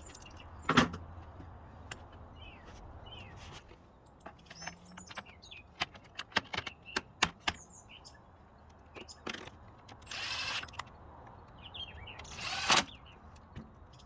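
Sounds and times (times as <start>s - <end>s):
small birds chirping: 0.0s - 0.7s, 1.8s - 14.0s.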